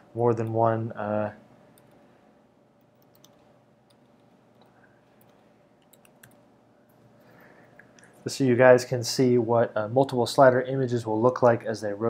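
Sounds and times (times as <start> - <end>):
computer keyboard keystrokes: 2.8 - 6.4.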